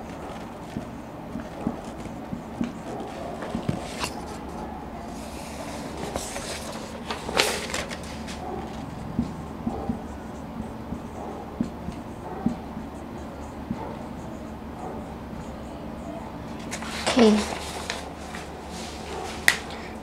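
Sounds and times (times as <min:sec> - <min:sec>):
paper rustling: 0:00.0 - 0:09.0, 0:16.6 - 0:19.9
marker pen on whiteboard: 0:00.0 - 0:20.0.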